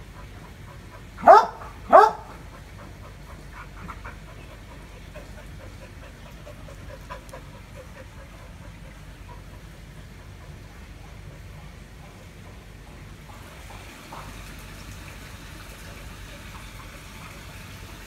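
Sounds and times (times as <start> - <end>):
dog barking: 1.2 - 2.4.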